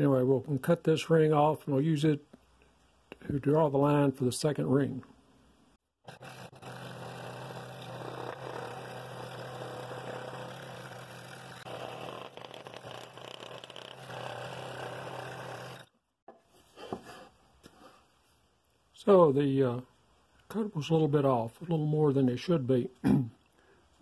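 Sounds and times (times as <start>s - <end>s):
scroll saw humming: 6.0s - 16.0s
saw blade rasping in wood: 6.1s - 15.9s.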